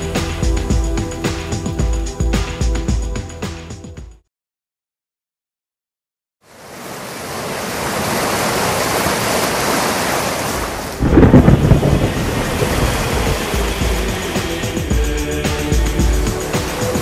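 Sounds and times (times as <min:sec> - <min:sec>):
steady rain: 0:06.5 - 0:17.0
thunder rumble: 0:10.7 - 0:14.3.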